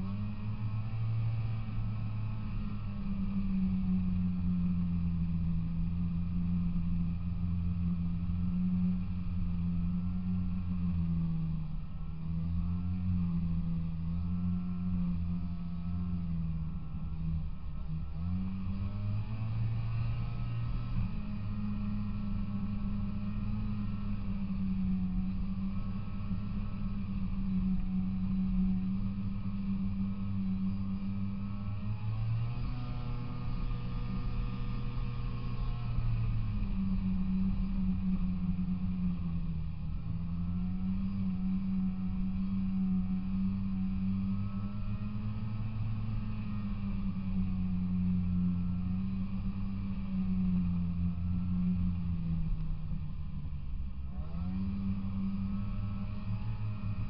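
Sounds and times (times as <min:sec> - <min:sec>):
snowmobile engine running: 0:00.0 - 0:57.0.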